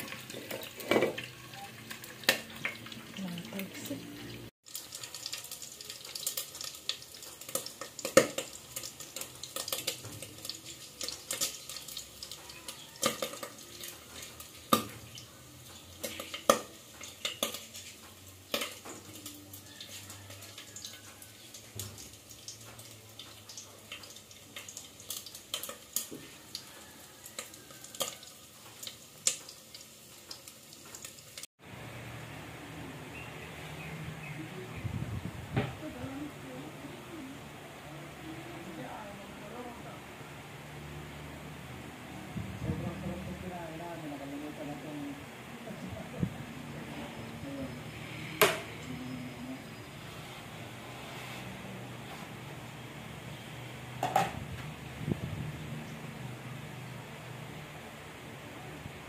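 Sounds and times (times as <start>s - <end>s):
cookware and utensils clinking: 0.0s - 31.2s, 54.0s - 54.5s.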